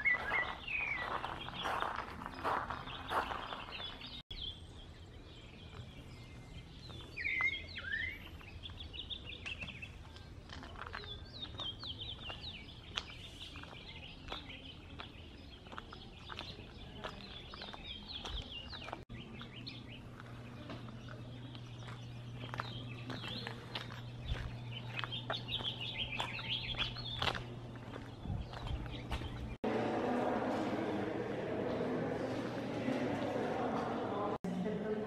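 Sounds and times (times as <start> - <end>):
birds chirping: 0.0 - 29.8.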